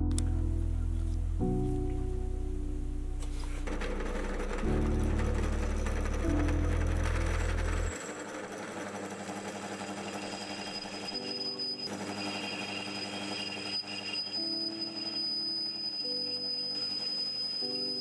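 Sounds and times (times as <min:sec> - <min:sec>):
high whine: 0:00.0 - 0:08.1, 0:10.0 - 0:18.0
low hum: 0:00.0 - 0:08.1
drill press cutting metal: 0:03.6 - 0:18.0.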